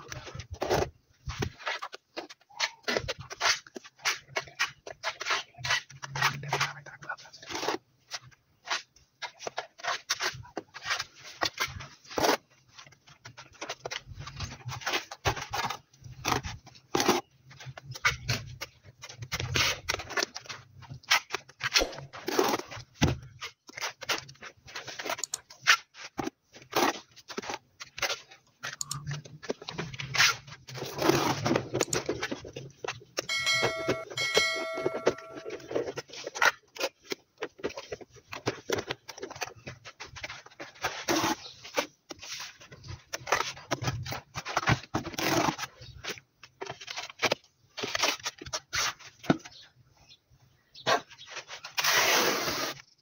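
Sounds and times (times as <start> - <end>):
short high-pitched tones: 33.3 - 35.7
trowel scraping and slapping adhesive: 35.6 - 49.4.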